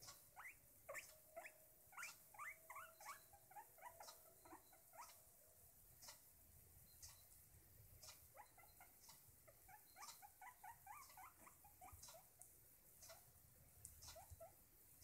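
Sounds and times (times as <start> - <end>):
guinea pig squeaking: 0.0 - 5.2, 6.0 - 6.2, 8.0 - 13.3, 13.9 - 14.6.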